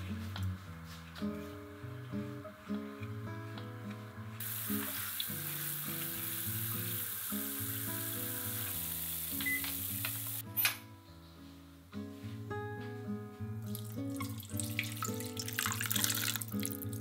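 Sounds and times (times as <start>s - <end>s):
soft guitar music: 0.0s - 17.0s
sauce boiling and sizzling in wok: 4.4s - 10.4s, 13.6s - 17.0s.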